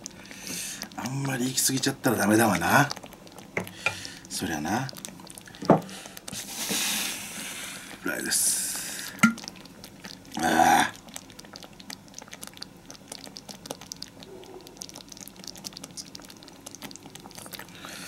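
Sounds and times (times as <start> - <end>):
mouth clicks and smacks chewing: 9.2 - 17.8.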